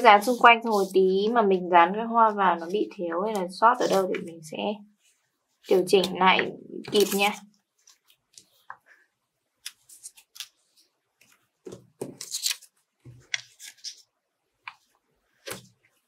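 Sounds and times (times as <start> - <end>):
scratchy paper rustles: 0.0 - 1.2, 6.9 - 8.6, 9.8 - 14.1.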